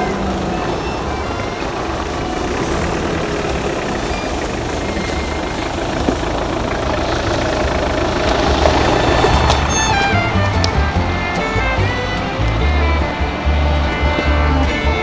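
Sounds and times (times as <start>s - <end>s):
off-road engines rumbling: 0.0s - 15.0s.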